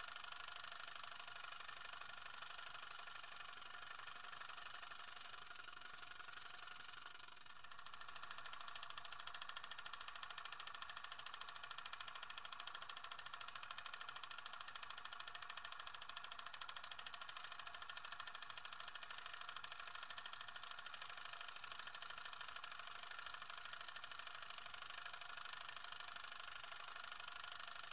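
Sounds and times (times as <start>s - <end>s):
film projector clatter: 0.0s - 27.9s.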